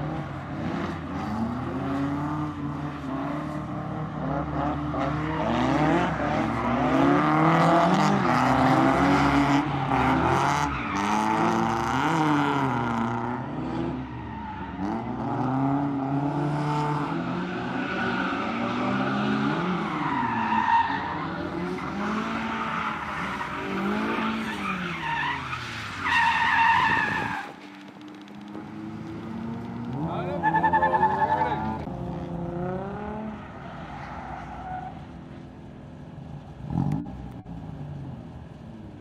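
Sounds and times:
car engines revving: 0.0 - 39.0
tyres squealing and skidding: 4.9 - 16.0, 16.9 - 31.9, 32.9 - 35.4.

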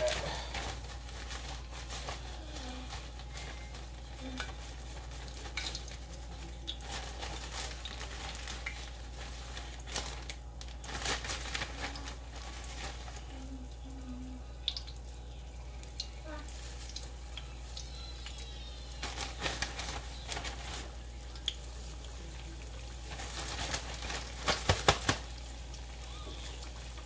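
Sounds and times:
oil crackling: 0.0 - 27.0
chicken sizzling in oil: 11.9 - 27.0.

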